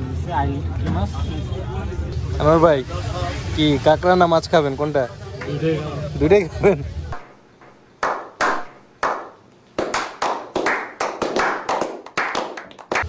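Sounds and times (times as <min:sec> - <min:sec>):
hand claps: 0:08.0 - 0:13.0.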